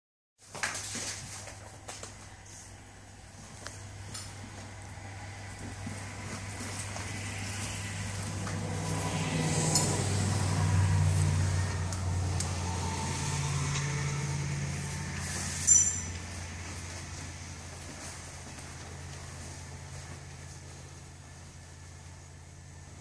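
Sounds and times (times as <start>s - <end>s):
low machine hum: 2.4s - 23.0s
clasps clinking: 15.6s - 16.3s.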